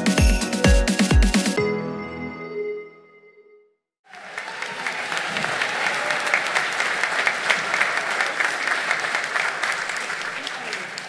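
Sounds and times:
electronic music: 0:00.0 - 0:03.0
audience applauding: 0:04.0 - 0:11.0.

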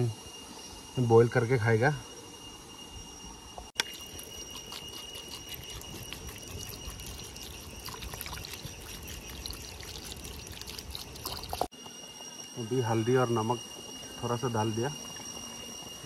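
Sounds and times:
water bubbling in a pot: 0:03.8 - 0:11.7, 0:14.9 - 0:16.0
steady high tones: 0:11.6 - 0:16.0.

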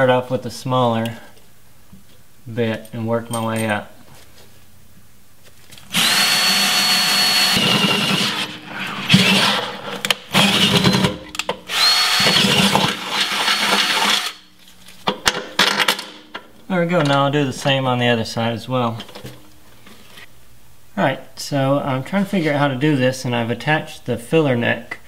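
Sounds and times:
cordless drill drilling into steel: 0:05.9 - 0:08.6, 0:11.7 - 0:14.4.

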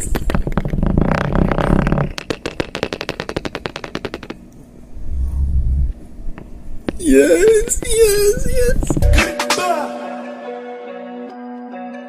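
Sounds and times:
fine crackling clicks: 0:00.0 - 0:04.6.

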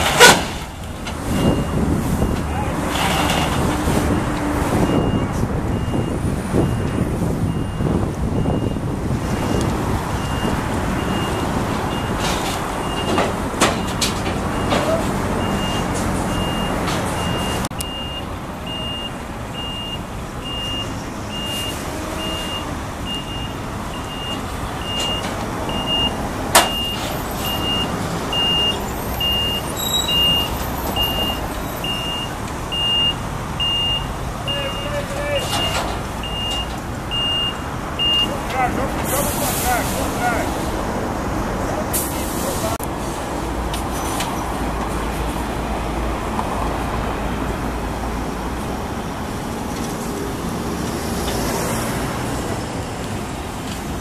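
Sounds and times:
truck reversing alarm beeps: 0:00.8 - 0:02.7, 0:04.1 - 0:38.7.

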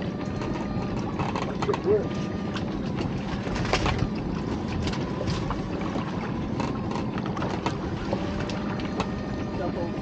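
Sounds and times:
water noise: 0:00.0 - 0:10.0
wind: 0:00.0 - 0:10.0.

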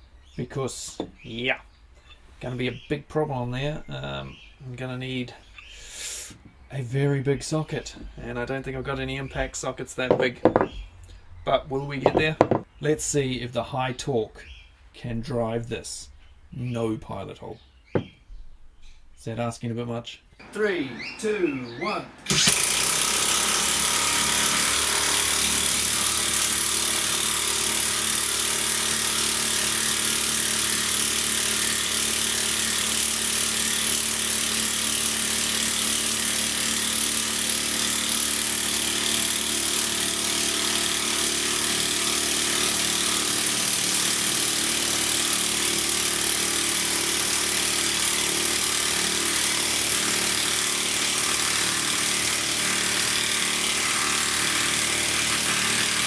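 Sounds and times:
impact wrench hammering: 0:10.1 - 0:10.8, 0:12.0 - 0:12.7, 0:18.0 - 0:18.2.

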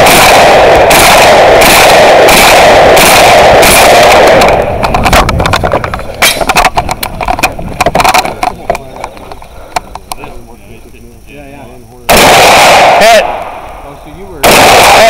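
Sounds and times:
shotgun fire: 0:00.0 - 0:05.2, 0:12.1 - 0:13.7, 0:14.4 - 0:15.0.

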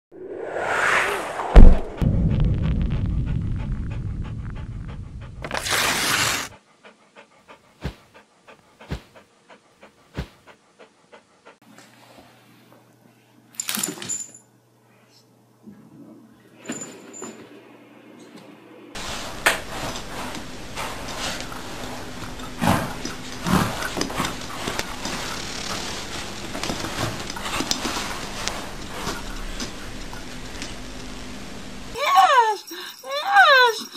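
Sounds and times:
low thumps: 0:00.1 - 0:05.5
sharp heavy hit: 0:00.1 - 0:05.6
low rumble: 0:00.1 - 0:05.7
whoosh: 0:00.1 - 0:06.5
dog panting: 0:03.3 - 0:05.5, 0:06.5 - 0:11.6
pet bed dragged across floor: 0:19.0 - 0:29.5.

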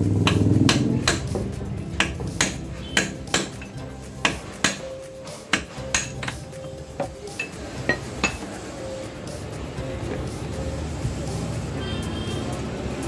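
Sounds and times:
hammer striking metal: 0:00.1 - 0:08.6.

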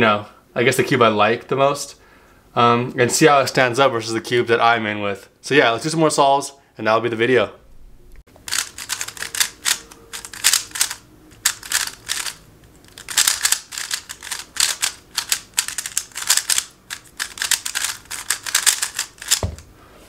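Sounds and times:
plastic puzzle cube clicking: 0:08.5 - 0:19.7.

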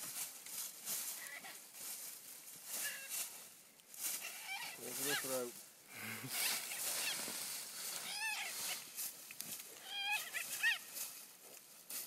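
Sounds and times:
rustling and crunching leaves: 0:00.0 - 0:12.0
high-pitched animal cries: 0:02.8 - 0:03.2, 0:04.2 - 0:05.4, 0:06.3 - 0:07.3, 0:07.9 - 0:08.9, 0:09.8 - 0:10.9.

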